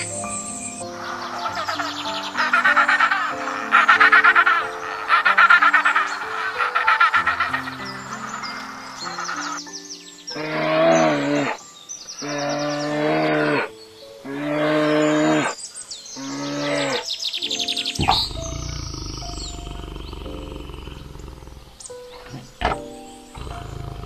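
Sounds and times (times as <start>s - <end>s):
high bird chirps: 0.0s - 14.0s, 15.0s - 24.0s
large animal calling: 1.0s - 9.6s, 18.0s - 24.0s
low rumbling growl: 18.0s - 22.7s, 23.4s - 24.0s.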